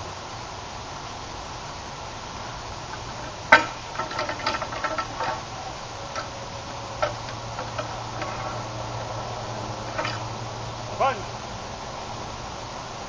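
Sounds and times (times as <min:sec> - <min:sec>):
wooden staff knocking on metal barrel: 0:03.5 - 0:05.4.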